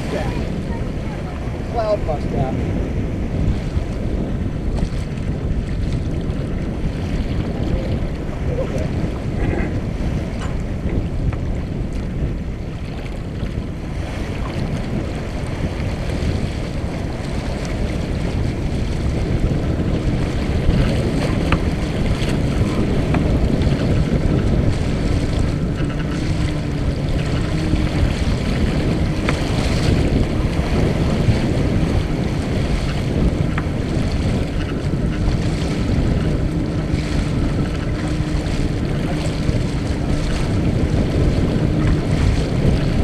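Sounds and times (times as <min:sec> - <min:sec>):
water rushing along hull: 0:00.0 - 0:43.0
wind buffeting microphone: 0:00.0 - 0:43.0.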